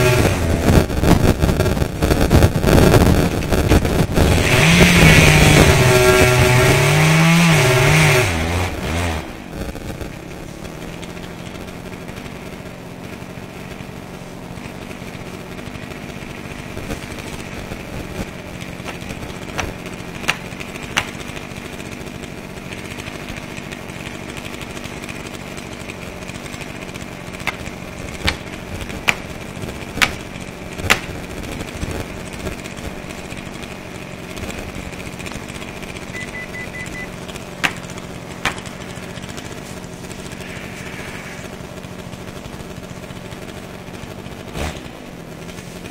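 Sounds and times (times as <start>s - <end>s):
chainsaw running: 0.0s - 45.9s
sharp knocks: 18.8s - 21.2s, 27.4s - 29.2s, 30.0s - 30.2s, 30.8s - 31.1s, 37.6s - 37.8s, 38.4s - 38.7s.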